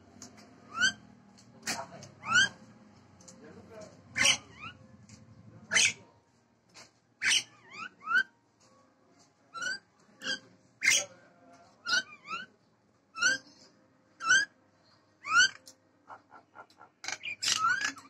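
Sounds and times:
myna bird whistles and calls: 0:00.7 - 0:01.0, 0:02.2 - 0:02.6, 0:07.2 - 0:08.3, 0:13.2 - 0:13.5, 0:14.2 - 0:14.5, 0:15.2 - 0:15.6, 0:17.1 - 0:18.0.

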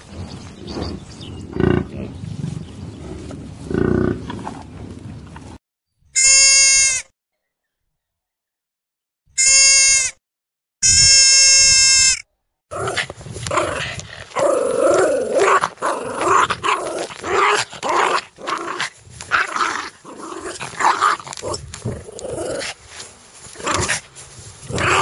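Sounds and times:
goat bleating: 0:06.2 - 0:07.0, 0:09.4 - 0:10.2, 0:10.8 - 0:12.2.

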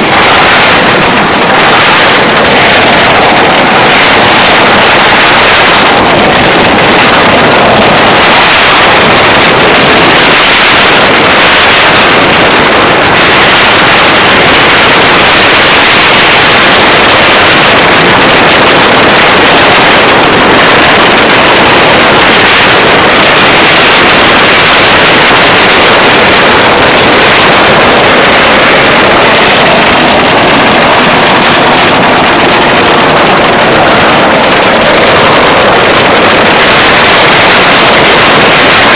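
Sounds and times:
firecracker strings crackling: 0:00.0 - 0:38.9.

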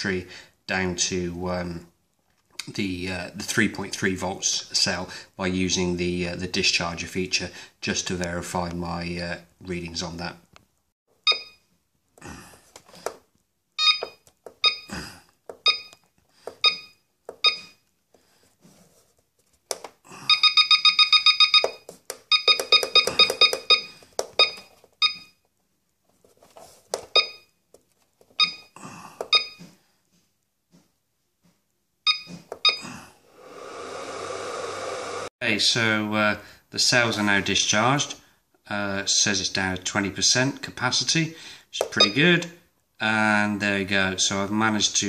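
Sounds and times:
battery charger key beeps: 0:11.3 - 0:11.6, 0:13.8 - 0:14.9, 0:15.6 - 0:16.0, 0:16.6 - 0:17.8, 0:20.3 - 0:25.4, 0:27.1 - 0:27.5, 0:28.4 - 0:28.7, 0:29.3 - 0:29.7, 0:32.1 - 0:32.8, 0:41.9 - 0:42.2.

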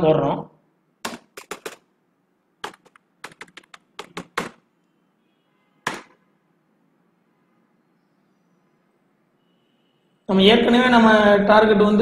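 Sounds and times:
computer keyboard typing: 0:01.0 - 0:01.8, 0:02.6 - 0:04.6.

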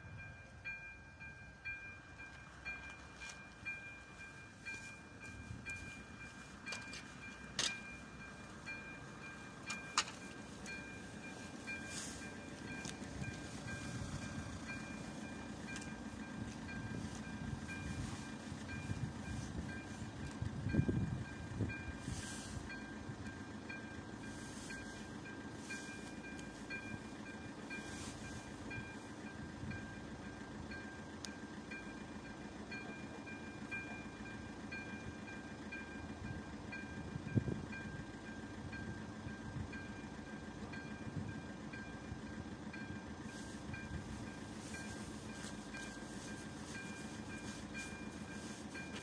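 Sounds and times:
crossing warning bell dinging: 0:00.0 - 0:49.0.

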